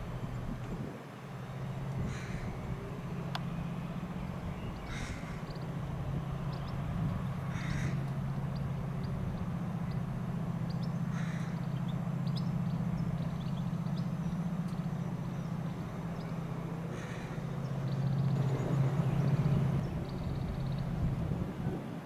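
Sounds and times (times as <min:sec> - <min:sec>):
train drone: 0:00.0 - 0:22.0
small birds chirping: 0:01.2 - 0:21.8
crow cawing: 0:02.0 - 0:02.7, 0:04.8 - 0:05.6, 0:07.4 - 0:08.3, 0:11.0 - 0:12.0, 0:16.8 - 0:17.8.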